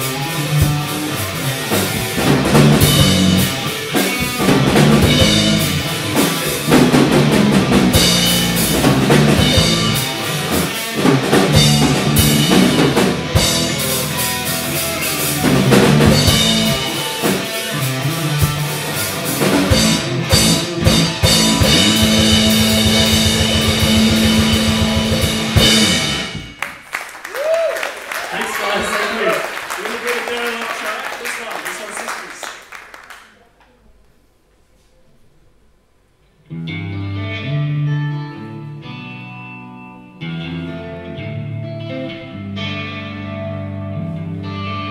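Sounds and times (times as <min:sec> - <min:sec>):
live rock band playing: 0:00.0 - 0:26.8, 0:36.5 - 0:44.9
rapid even drumming: 0:00.0 - 0:26.8.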